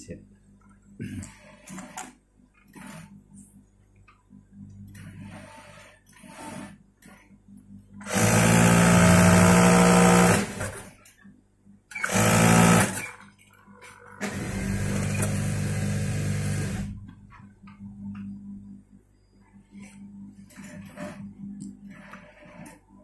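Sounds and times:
sewing machine stitching: 0:04.9 - 0:07.2, 0:08.0 - 0:11.0, 0:11.9 - 0:13.2, 0:14.2 - 0:17.1.

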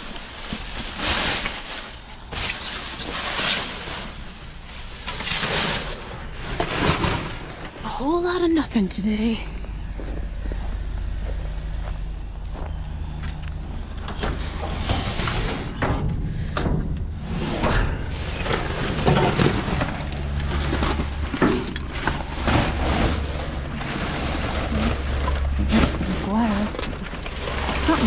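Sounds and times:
trash rustling in a dumpster: 0:00.0 - 0:08.6, 0:13.7 - 0:28.0
low engine hum: 0:07.5 - 0:28.0.

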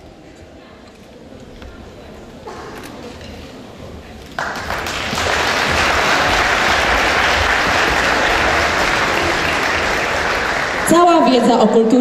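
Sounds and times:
audience applause: 0:04.4 - 0:11.4.

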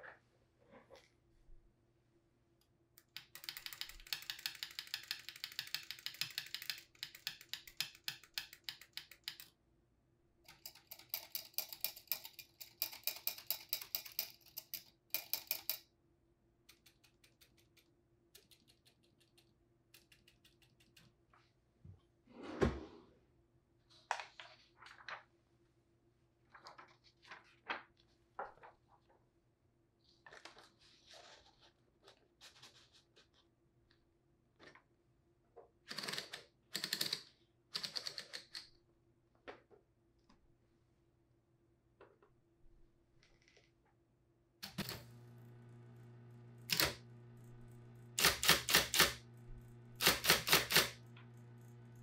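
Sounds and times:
typewriter motor hum: 0:44.6 - 0:52.0
typewriter key strikes: 0:48.2 - 0:49.2, 0:50.0 - 0:51.0.

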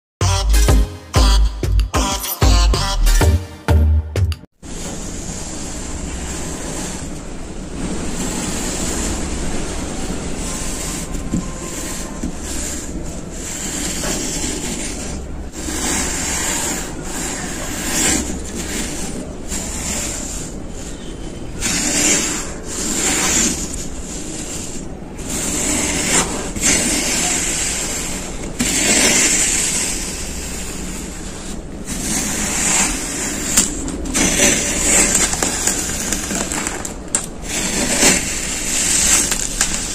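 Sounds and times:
scoop scraping through sand: 0:08.1 - 0:39.9.

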